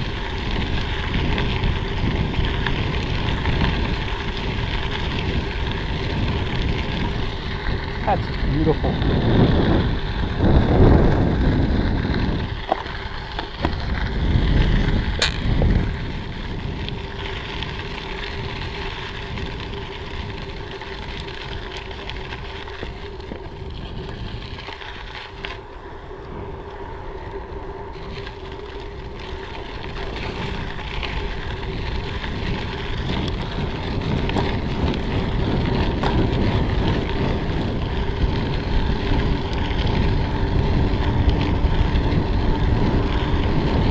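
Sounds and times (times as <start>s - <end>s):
bicycle tyres rolling: 0.0s - 43.9s
wind buffeting microphone: 0.0s - 43.9s.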